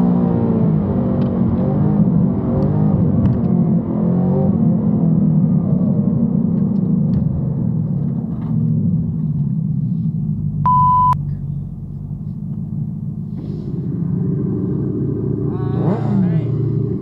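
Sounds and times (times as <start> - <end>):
car engine rumbling at low revs: 0.0 - 17.0
single-tone bleep: 10.6 - 11.2.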